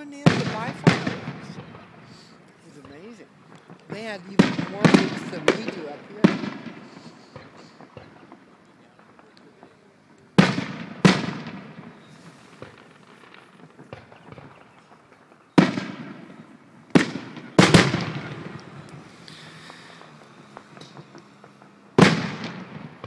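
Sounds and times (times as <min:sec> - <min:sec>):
firework shells booming: 0:00.0 - 0:23.0.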